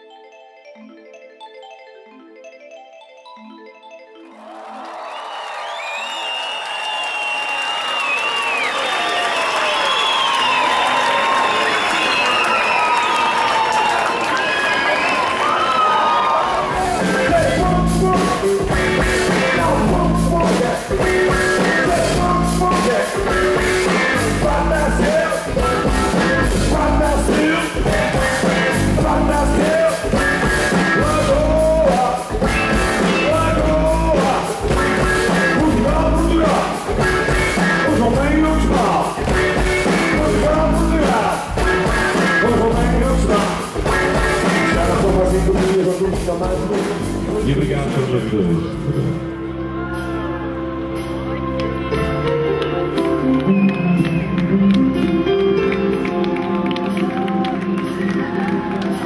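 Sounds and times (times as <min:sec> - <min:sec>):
rock band playing: 0:16.3 - 0:59.0
man singing: 0:17.0 - 0:47.0.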